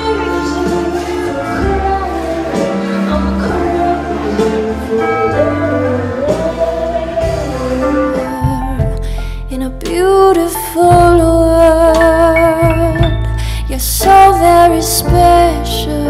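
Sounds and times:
live band with electric guitar: 0:00.0 - 0:16.0
woman singing: 0:00.0 - 0:16.0.

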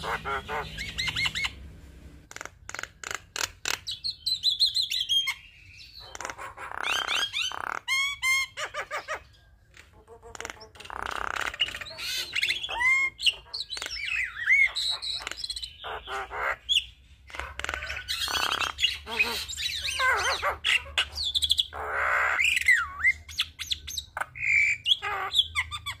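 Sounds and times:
myna bird singing: 0:00.0 - 0:26.0.

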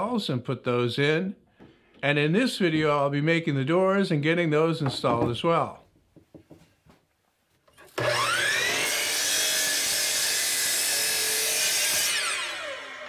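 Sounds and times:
saw blade cutting board: 0:07.9 - 0:13.0
miter saw motor whine: 0:08.0 - 0:13.0.

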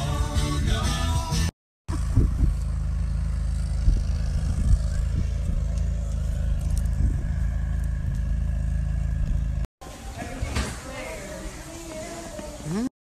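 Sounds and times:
vehicle engine rumble: 0:00.0 - 0:12.9
wind buffeting microphone: 0:01.9 - 0:03.0, 0:03.6 - 0:08.3.

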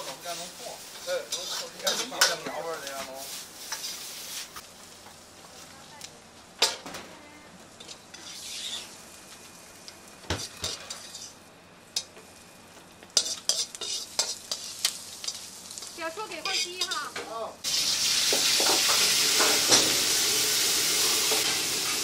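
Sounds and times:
food sizzling: 0:00.0 - 0:22.0
metal ladle scraping a wok: 0:01.0 - 0:02.4, 0:07.8 - 0:08.9, 0:10.4 - 0:11.4, 0:13.2 - 0:15.4.

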